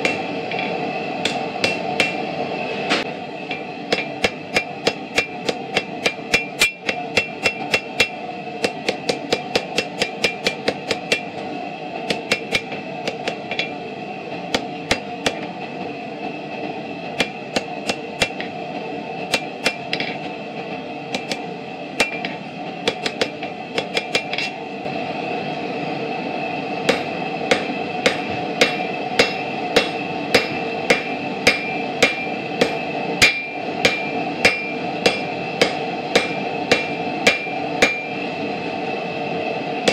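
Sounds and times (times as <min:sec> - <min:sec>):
anvil ringing: 0:00.0 - 0:02.3, 0:03.5 - 0:11.3, 0:22.0 - 0:24.6, 0:26.9 - 0:38.2
hammer striking hot metal: 0:00.0 - 0:15.6, 0:17.1 - 0:18.6, 0:19.2 - 0:20.4, 0:21.1 - 0:24.6, 0:26.8 - 0:38.3
steady background noise: 0:00.0 - 0:39.9.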